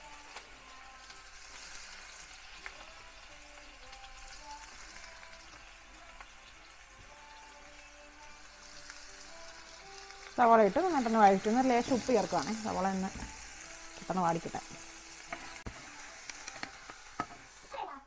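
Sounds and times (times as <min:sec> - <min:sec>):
onion sizzling in hot oil: 0:00.0 - 0:18.0.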